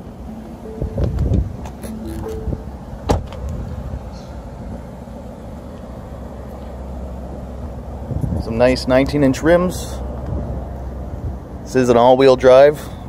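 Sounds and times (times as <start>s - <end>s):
steady low rumble: 0.0s - 13.0s
car door shutting: 0.4s - 3.6s.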